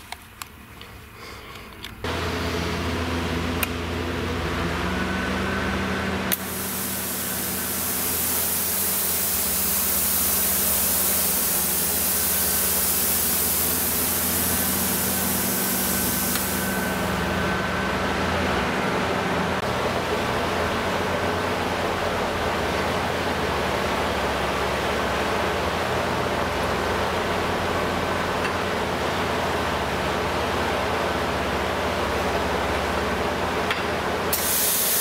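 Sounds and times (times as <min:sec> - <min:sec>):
compressed air hissing through torch: 0:06.3 - 0:17.2, 0:34.3 - 0:35.0
plasma cutter humming: 0:06.3 - 0:17.3, 0:34.3 - 0:35.0.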